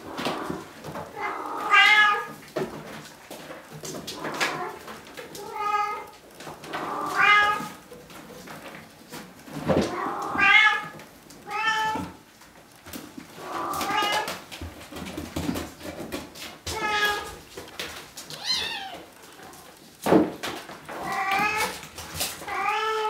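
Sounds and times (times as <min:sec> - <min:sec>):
kittens meowing: 0:18.3 - 0:19.2.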